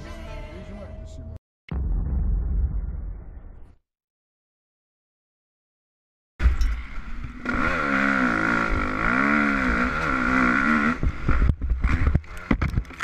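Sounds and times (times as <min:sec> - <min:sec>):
motocross bike engine revving: 0:07.2 - 0:12.5.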